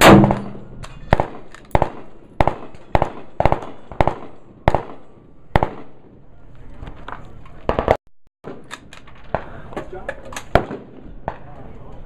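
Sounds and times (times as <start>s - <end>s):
loud rifle shot: 0.0s - 5.0s.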